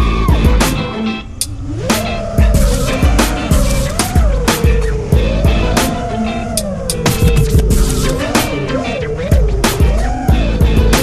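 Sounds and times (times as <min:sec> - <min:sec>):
hip-hop music with drum beat: 0:01.9 - 0:06.0, 0:06.9 - 0:11.0.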